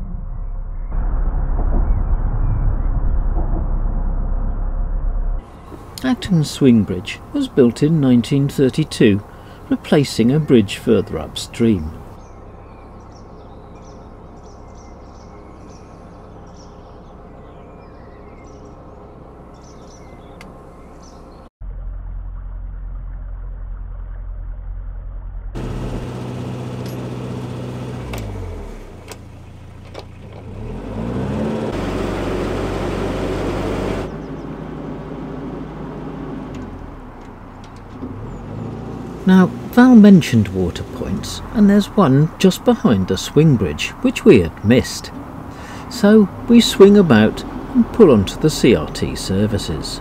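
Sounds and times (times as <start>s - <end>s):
rushing noise: 0.0s - 6.0s
faint birdsong: 5.5s - 21.5s, 34.1s - 34.7s, 36.7s - 50.0s
boat engine running: 5.5s - 50.0s.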